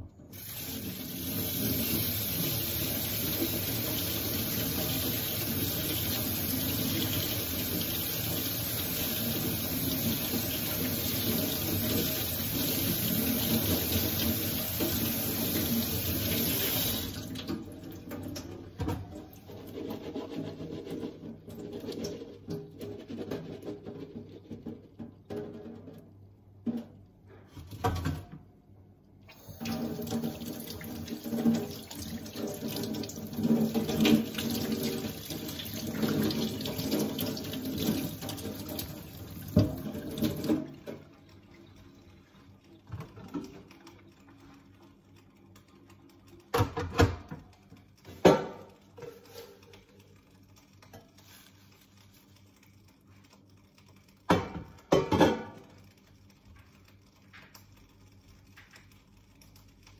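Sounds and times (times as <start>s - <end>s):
knocks and clatters: 19.8s - 28.4s
tap running into steel sink: 29.6s - 41.0s.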